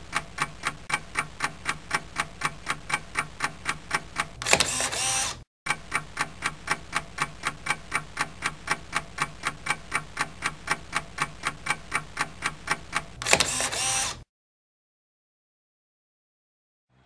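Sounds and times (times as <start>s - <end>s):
clock ticking: 0.0s - 4.5s, 5.7s - 13.2s.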